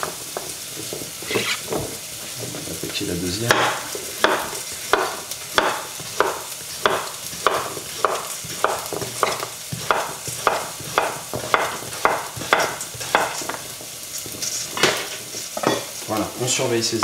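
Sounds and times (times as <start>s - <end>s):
shallots sizzling in oil: 0.0s - 17.0s
knife slicing on wooden board: 1.2s - 1.8s.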